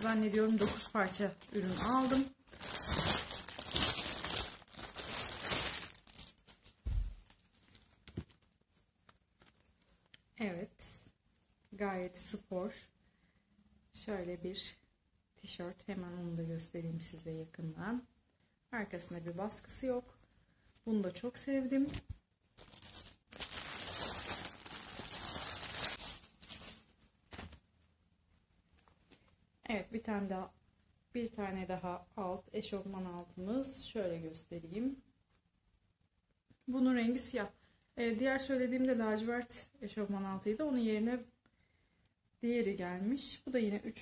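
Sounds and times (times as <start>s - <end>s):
plastic bag crinkling and tearing: 0.0s - 8.4s, 22.6s - 27.6s.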